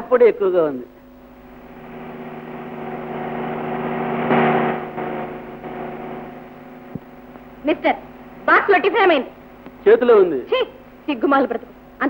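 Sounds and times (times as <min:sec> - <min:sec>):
car engine pulling in: 0:01.5 - 0:08.4.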